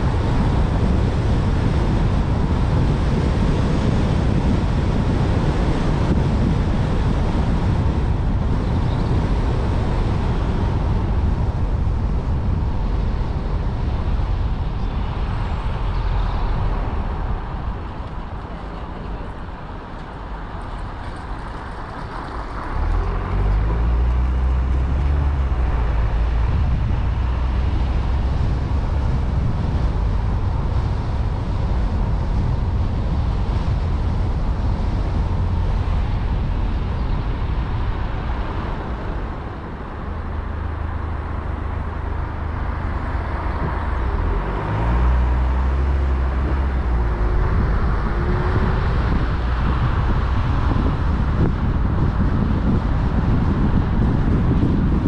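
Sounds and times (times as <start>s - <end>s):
car engine revving: 42.4s - 51.2s.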